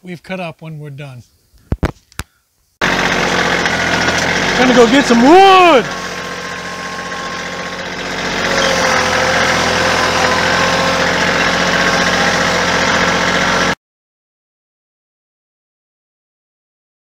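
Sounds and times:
tractor diesel engine running: 2.8s - 13.8s.

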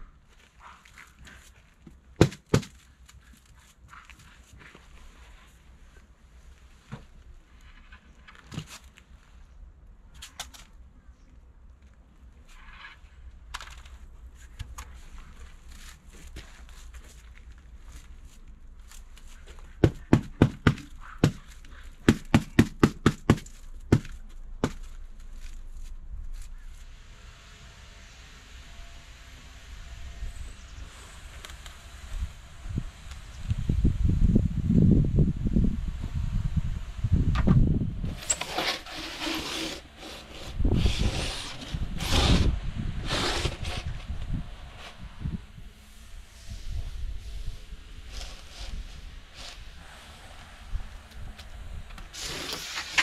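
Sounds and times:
polystyrene board scraping on cutter: 38.1s - 44.2s, 48.0s - 50.2s, 52.1s - 53.0s.

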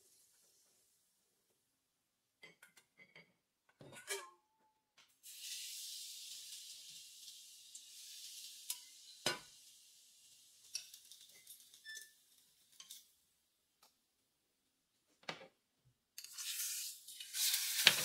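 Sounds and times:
hot oil sizzling on garlic: 5.2s - 13.3s, 16.2s - 18.0s.

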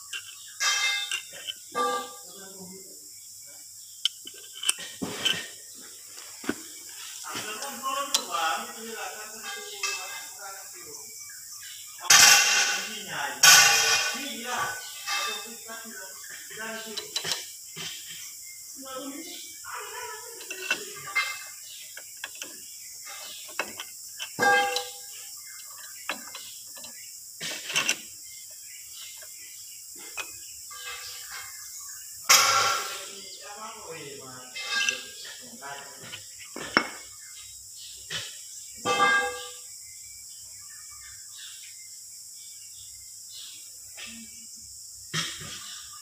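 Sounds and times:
metal part clinking: 0.0s - 2.2s, 4.0s - 5.5s, 12.1s - 15.8s, 16.8s - 18.0s, 19.8s - 29.4s, 30.0s - 31.6s, 32.3s - 33.1s, 34.5s - 37.1s, 38.8s - 39.6s
ringing metal clank: 0.2s - 2.3s, 12.1s - 15.7s, 20.4s - 22.4s, 23.0s - 27.0s, 32.3s - 33.2s, 34.5s - 37.1s, 38.2s - 39.7s
light metal clicks and knocks: 4.0s - 5.4s, 20.4s - 29.4s.

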